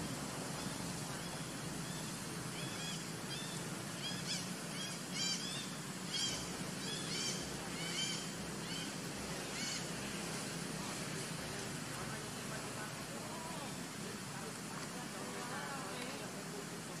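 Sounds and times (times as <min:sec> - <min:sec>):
high animal calls: 0:00.0 - 0:10.1
steady low hum: 0:00.0 - 0:17.0.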